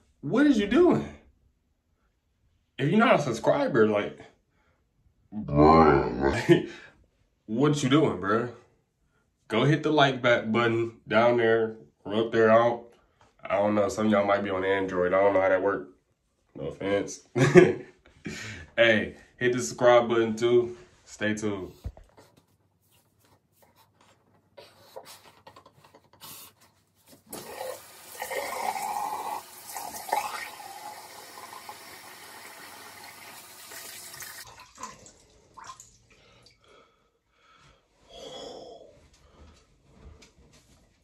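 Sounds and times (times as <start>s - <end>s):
shower water spraying on head: 27.3s - 34.5s.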